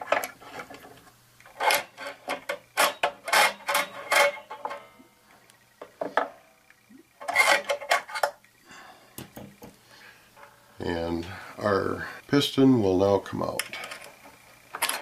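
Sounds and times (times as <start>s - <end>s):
metal scraping and clinking: 0.0s - 5.0s, 7.2s - 8.4s, 13.5s - 15.0s.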